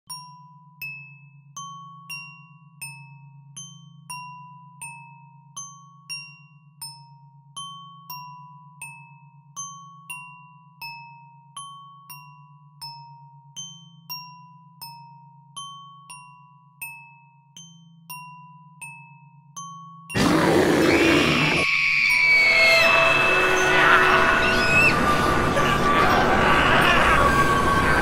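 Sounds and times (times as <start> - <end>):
chiming glockenspiel melody: 0.1 - 20.2
low drone: 20.2 - 28.0.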